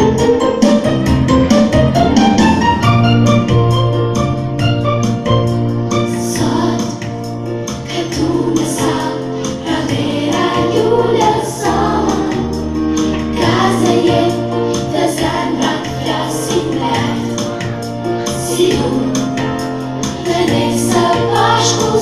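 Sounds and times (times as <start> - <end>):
keyboard accompaniment: 0.0 - 22.0
voices singing: 7.8 - 22.0.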